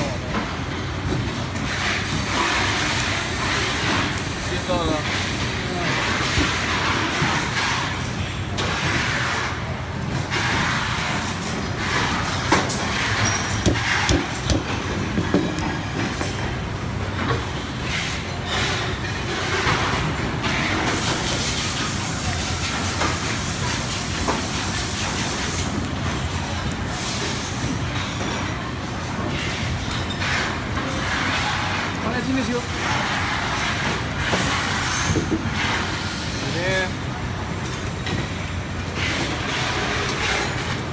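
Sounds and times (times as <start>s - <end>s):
mechanical rumble and hiss: 0.0s - 40.9s
sharp clicks and knocks: 12.4s - 16.4s.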